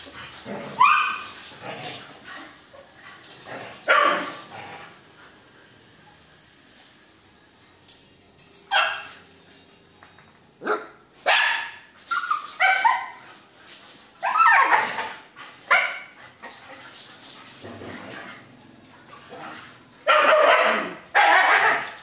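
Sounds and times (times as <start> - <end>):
dogs barking and yelping: 0.0 - 4.8, 5.9 - 9.4, 10.6 - 13.4, 14.2 - 22.0
dogs scuffling and snapping: 0.0 - 5.2, 11.9 - 19.8.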